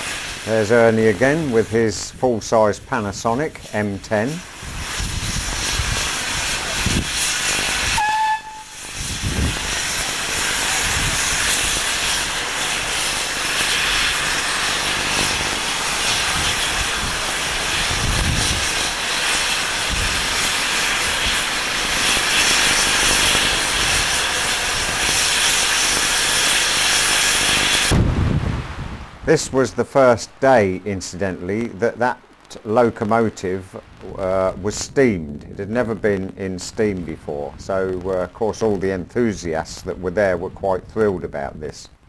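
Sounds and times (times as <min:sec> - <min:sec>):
steam locomotive hissing: 0:00.0 - 0:28.0
wind buffeting microphone: 0:04.5 - 0:08.0, 0:08.9 - 0:12.0, 0:16.0 - 0:19.0, 0:19.8 - 0:21.4, 0:27.8 - 0:29.6.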